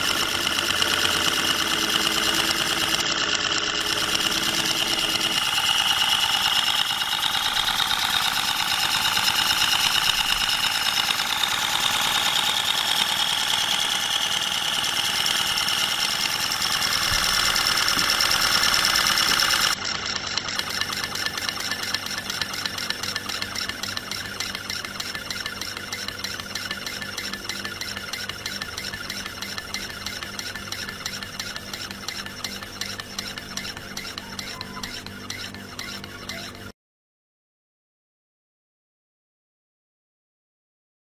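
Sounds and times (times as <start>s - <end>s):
rotary steam engine rasping beat: 20.6s - 36.7s.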